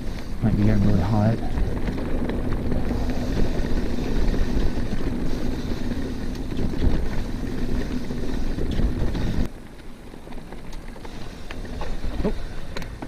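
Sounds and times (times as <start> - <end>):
wind rumble on microphone: 0.0 - 9.5
bike tyres on dirt trail: 0.0 - 13.0
disc brakes wailing: 10.7 - 13.0.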